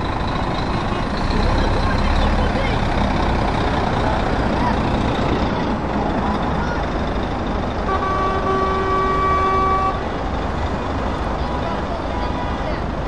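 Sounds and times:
lorry diesel engines running: 0.0s - 13.0s
truck horn: 7.8s - 10.2s.

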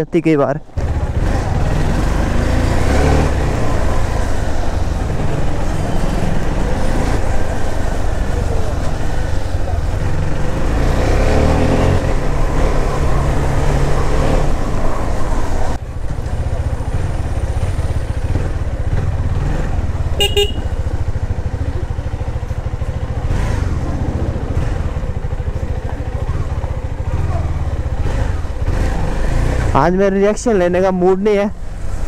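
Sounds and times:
motorcycle engine running: 0.7s - 32.0s
vehicle horn toot: 20.2s - 20.8s.

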